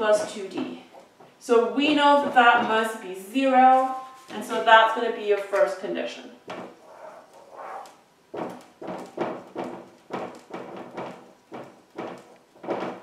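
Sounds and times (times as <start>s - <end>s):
marker squeaking on whiteboard: 6.5s - 12.6s.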